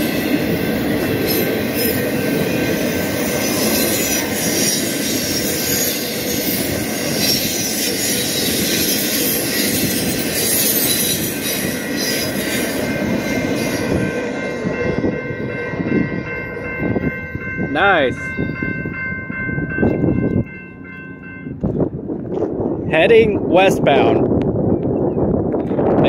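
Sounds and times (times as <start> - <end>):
train wheels rumbling on rail: 0.0 - 26.0
wheel squeal: 3.0 - 13.9.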